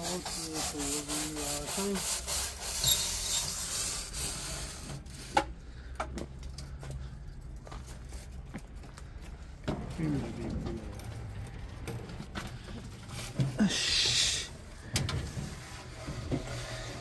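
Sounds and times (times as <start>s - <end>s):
chimney brush scraping metal pipe: 0.0s - 5.3s.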